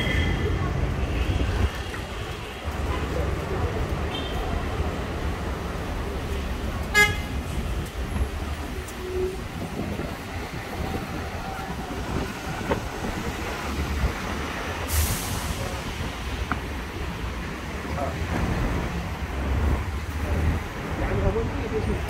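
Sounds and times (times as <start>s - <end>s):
city street traffic rumble: 0.0s - 22.0s
vehicle horn toot: 6.9s - 7.4s.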